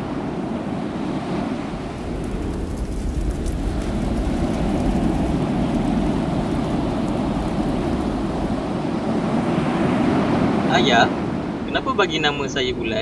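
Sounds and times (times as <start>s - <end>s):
surf breaking on shore: 0.0s - 13.0s
faint crackles: 1.0s - 9.5s.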